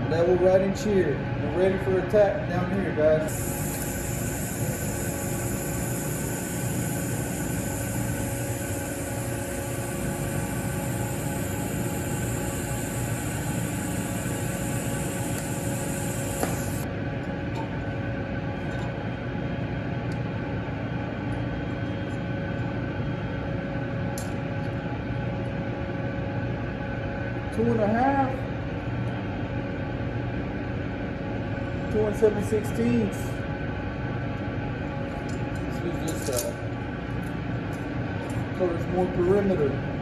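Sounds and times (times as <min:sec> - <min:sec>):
background hum: 0:00.0 - 0:40.0
welding arc hissing: 0:03.3 - 0:16.8.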